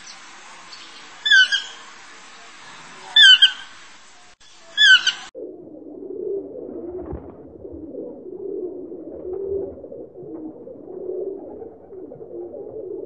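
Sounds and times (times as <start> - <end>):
pigeons cooing: 4.8 - 13.0.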